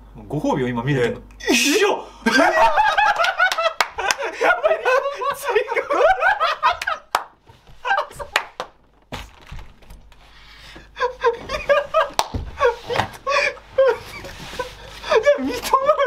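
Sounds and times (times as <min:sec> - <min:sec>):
men laughing hysterically: 0:01.5 - 0:08.6, 0:10.8 - 0:16.0.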